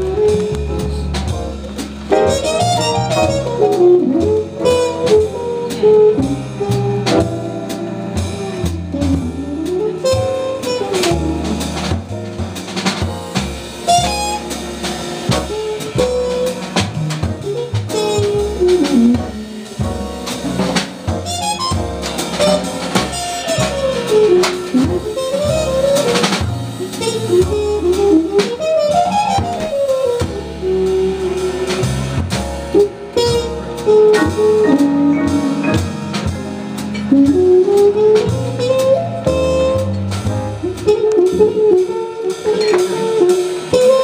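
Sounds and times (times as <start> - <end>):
bass playing low notes: 0.0 - 42.0
drum kit: 0.0 - 44.0
trumpet solo: 2.1 - 6.8, 8.6 - 11.6, 21.2 - 26.4, 32.8 - 36.4.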